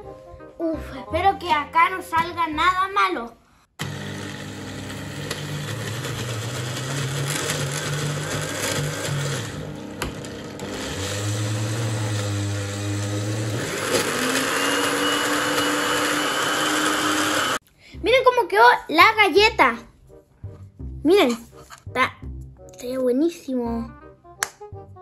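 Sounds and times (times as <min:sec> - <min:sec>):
blender motor running: 0:03.8 - 0:17.6.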